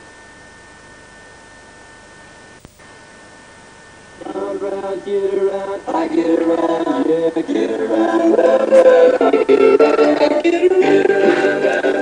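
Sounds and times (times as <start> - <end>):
background hum and hiss: 0.0 - 12.0
music: 5.3 - 12.0.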